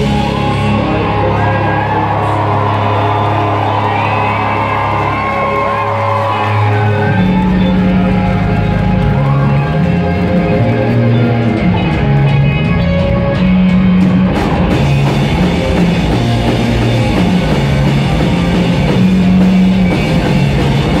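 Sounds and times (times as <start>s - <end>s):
drum kit: 0.0s - 21.0s
electric guitars: 0.0s - 21.0s
low bass notes: 0.0s - 21.0s.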